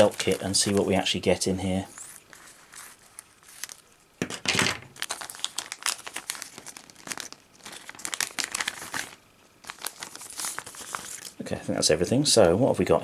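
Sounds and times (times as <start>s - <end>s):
scissors cutting plastic bag: 0.0s - 1.0s, 5.0s - 11.4s
plastic bag crinkling: 0.0s - 11.5s.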